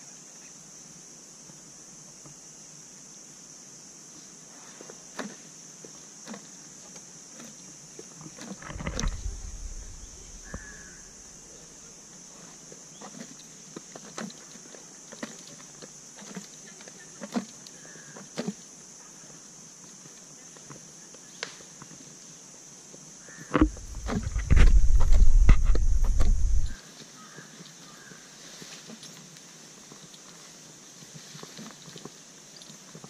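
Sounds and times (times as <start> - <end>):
soft knocks and creaks: 8.4 - 11.4, 23.5 - 26.8
steady high hiss: 8.6 - 13.8
low rumble: 8.7 - 11.4, 23.6 - 26.8.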